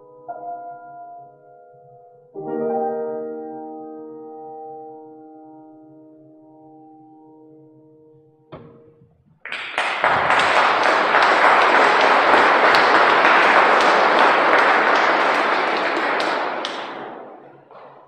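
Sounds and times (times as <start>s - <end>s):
audience applauding: 9.4s - 18.0s.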